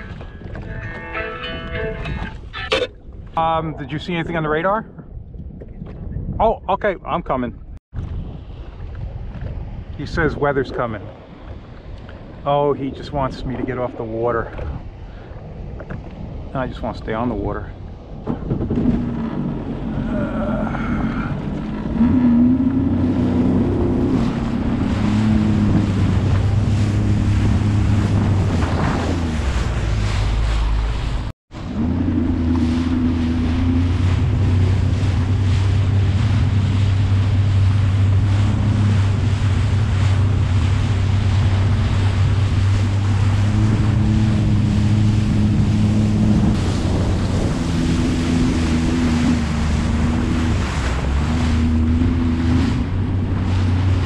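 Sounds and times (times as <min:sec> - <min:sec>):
wind on microphone: 0:00.0 - 0:54.0
watercraft engine running: 0:08.0 - 0:54.0
water rushing and spraying: 0:19.3 - 0:54.0.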